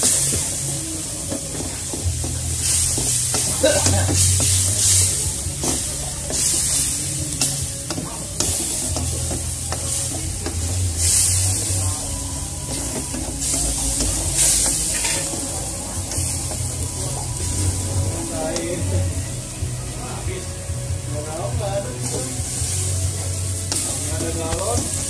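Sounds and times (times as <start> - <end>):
spice paste sizzling: 0.0 - 25.0
spatula scraping a wok: 1.6 - 18.0.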